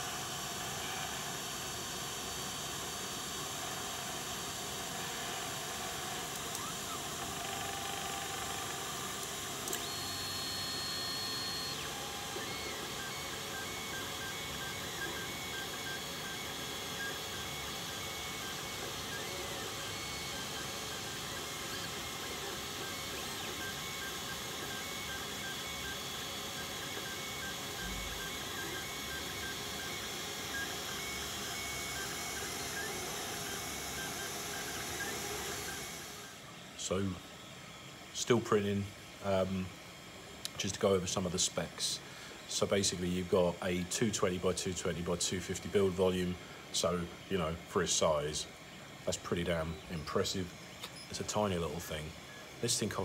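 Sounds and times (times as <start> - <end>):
stepper motors whining: 4.9 - 37.5.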